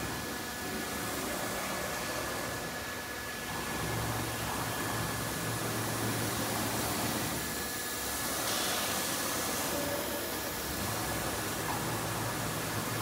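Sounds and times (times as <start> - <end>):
cnc router machine hiss: 0.0 - 13.0.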